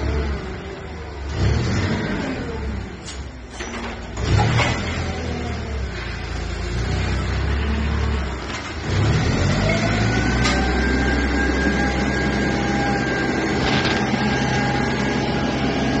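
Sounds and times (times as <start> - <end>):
forklift engine running: 0.0 - 16.0
steady whine: 12.8 - 16.0.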